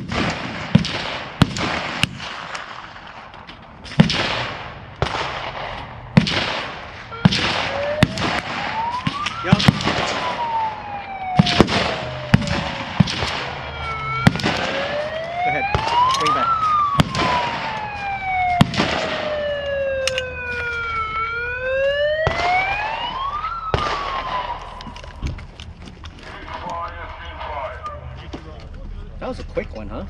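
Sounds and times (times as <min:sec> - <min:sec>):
gunshots: 0:00.0 - 0:20.2, 0:22.2 - 0:24.9
siren wailing: 0:06.9 - 0:28.4.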